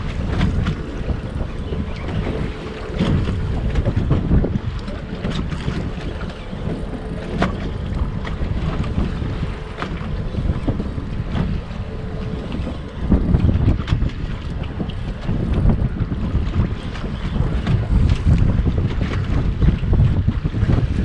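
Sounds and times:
water sloshing against boat hull: 0:00.0 - 0:21.0
wind buffeting microphone: 0:00.0 - 0:21.0.

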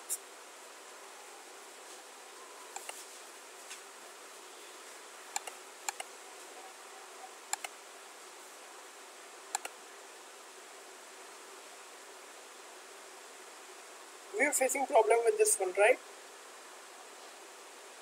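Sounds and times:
microphone hiss: 0:00.0 - 0:18.0
computer mouse clicking: 0:02.8 - 0:03.0, 0:05.3 - 0:06.1, 0:07.5 - 0:07.7, 0:09.5 - 0:09.8.

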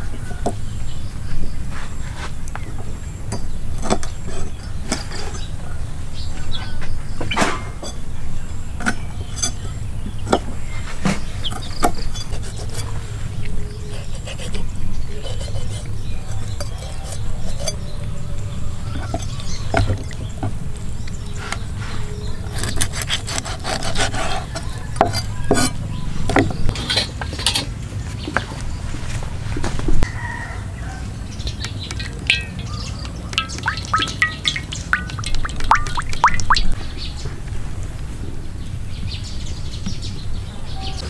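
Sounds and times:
bird chirps: 0:31.4 - 0:37.2.

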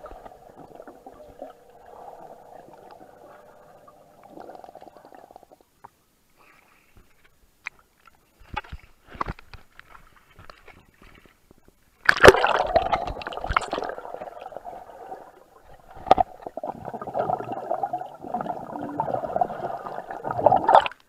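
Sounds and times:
muffled underwater bubbling: 0:00.0 - 0:05.6, 0:12.2 - 0:21.0.

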